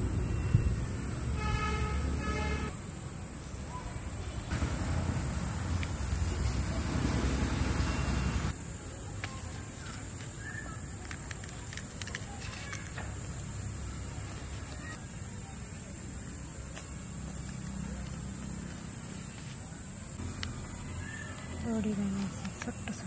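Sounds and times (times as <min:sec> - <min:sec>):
low outdoor rumble: 0:00.0 - 0:08.6
insects droning: 0:00.0 - 0:23.0
vehicle horn toot: 0:00.5 - 0:02.8.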